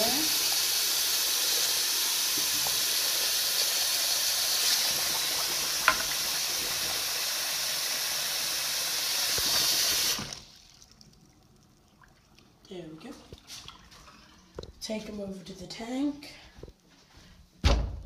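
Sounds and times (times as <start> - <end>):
faucet running into glass jar: 4.6 - 7.1.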